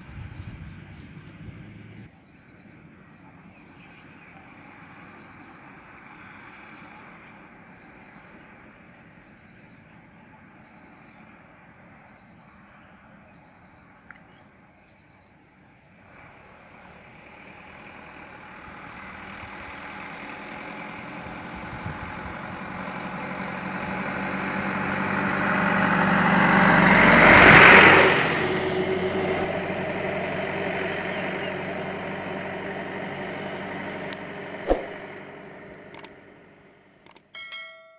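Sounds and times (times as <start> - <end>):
truck driving past: 16.2 - 37.0.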